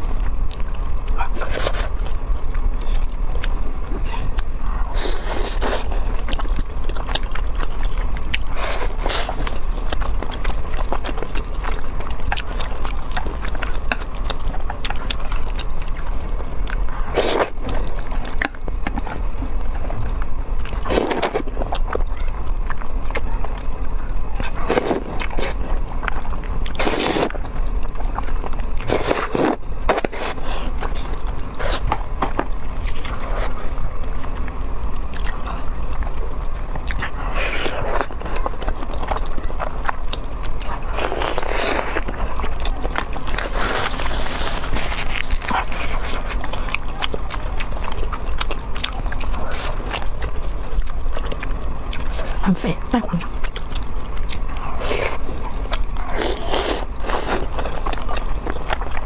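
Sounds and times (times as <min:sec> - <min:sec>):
steady low hum: 0:00.0 - 0:59.0
wet chewing: 0:00.0 - 0:59.0
noodle slurps: 0:26.8 - 0:27.3.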